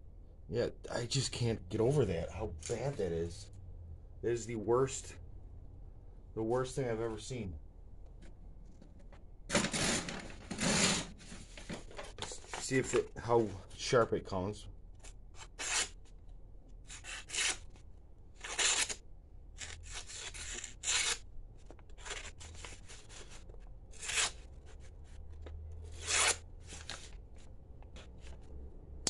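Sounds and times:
knife blade cutting paper: 15.4s - 16.0s, 19.6s - 21.2s, 25.9s - 26.4s.

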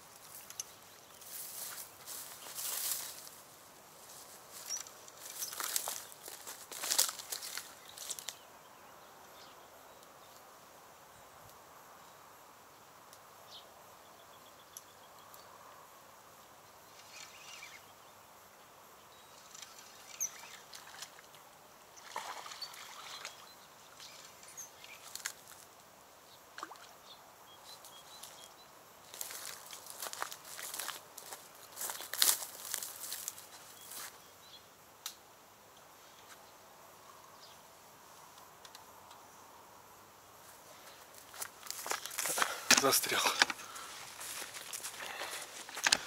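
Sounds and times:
dry reeds rustling: 0.0s - 8.4s, 19.3s - 21.4s, 22.0s - 25.7s, 27.7s - 34.2s, 40.4s - 46.0s.

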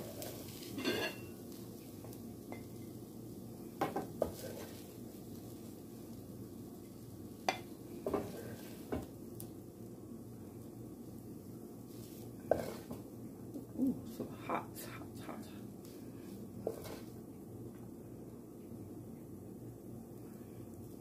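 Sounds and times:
spatula scraping in frying pan: 0.0s - 1.4s, 4.2s - 4.9s, 7.5s - 9.0s, 11.9s - 13.0s, 16.6s - 17.2s
steady low hum: 0.0s - 21.0s.

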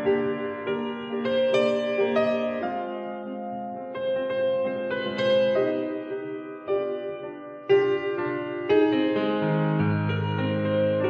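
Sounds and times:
slow gentle piano notes: 0.0s - 11.0s.

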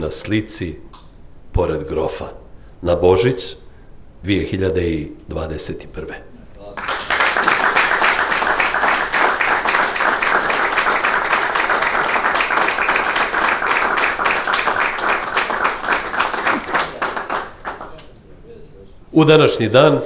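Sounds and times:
audience applauding: 6.8s - 18.0s.

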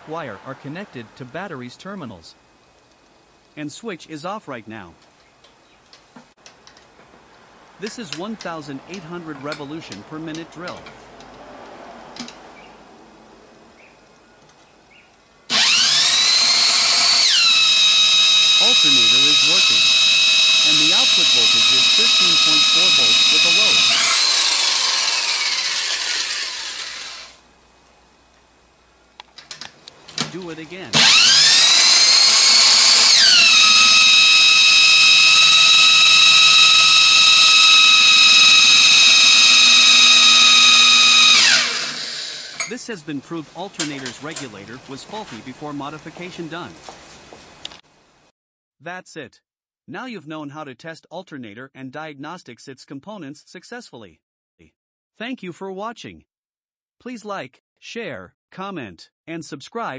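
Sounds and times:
electric drill whining: 15.5s - 27.4s, 30.2s - 42.8s, 43.7s - 46.9s.

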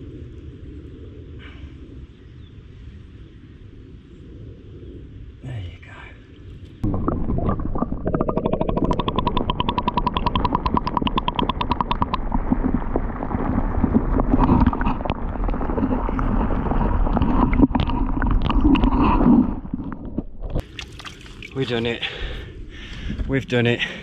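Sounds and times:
muffled underwater rumble: 6.8s - 20.7s
rapid fast ticks: 8.2s - 12.8s.

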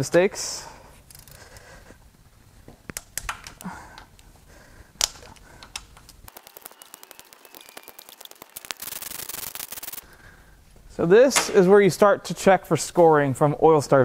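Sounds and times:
ratchet clicking: 6.3s - 10.0s.

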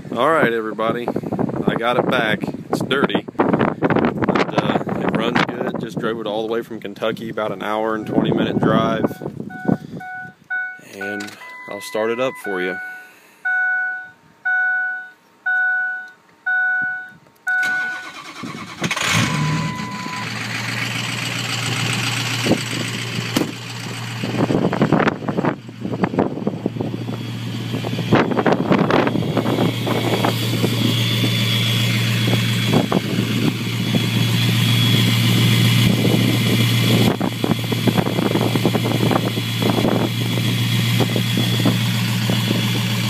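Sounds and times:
diesel engine cranking and idling: 0.0s - 43.0s
dashboard chime beeps: 7.9s - 18.0s, 19.3s - 20.3s.

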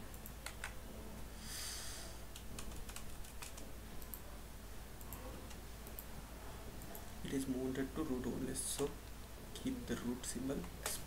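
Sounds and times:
faint low hum: 0.0s - 11.0s
computer keyboard typing: 0.2s - 0.8s, 2.3s - 4.2s.

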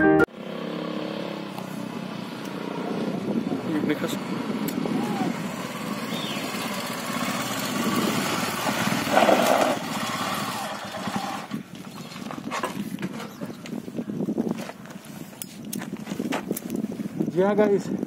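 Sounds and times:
motorcycle engine running: 1.1s - 14.2s.

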